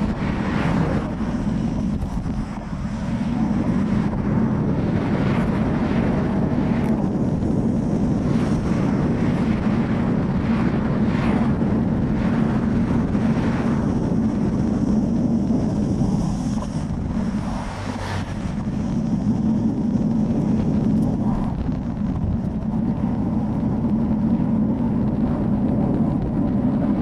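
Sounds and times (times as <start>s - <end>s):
wind rumble on microphone: 0.0s - 27.0s
cars whooshing past: 15.6s - 19.8s.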